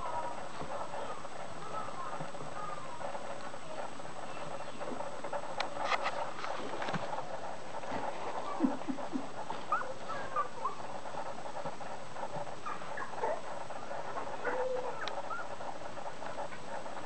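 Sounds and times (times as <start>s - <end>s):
puppies squeaking and whimpering: 9.5s - 10.9s, 12.6s - 15.6s
puppy whining: 9.5s - 10.9s, 12.6s - 15.6s.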